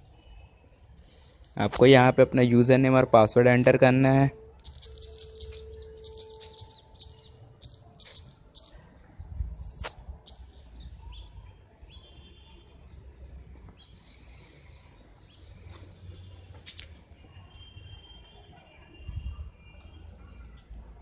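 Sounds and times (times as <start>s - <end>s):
sharp clicks: 4.0s - 8.8s, 9.8s - 10.5s.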